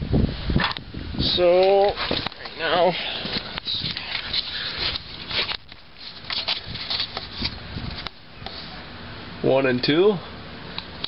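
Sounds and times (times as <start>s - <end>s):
camera handling rustling and scraping: 1.6s - 8.8s.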